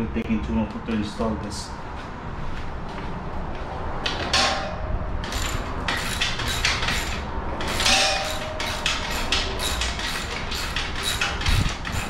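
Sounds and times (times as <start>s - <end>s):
socket ratchet clicking: 5.2s - 12.0s.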